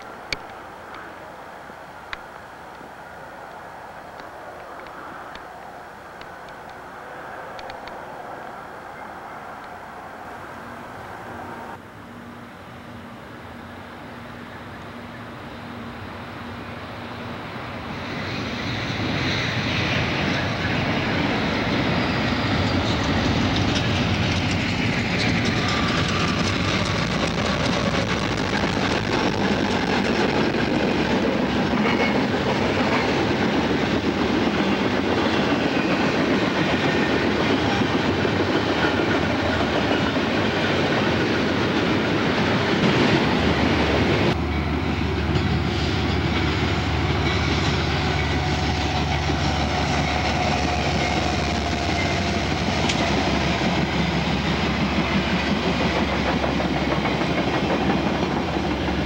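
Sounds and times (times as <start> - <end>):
diesel locomotive engine drone: 0.0 - 59.0
diesel locomotives passing: 0.0 - 59.0
wheels clicking over rail joints: 22.4 - 59.0.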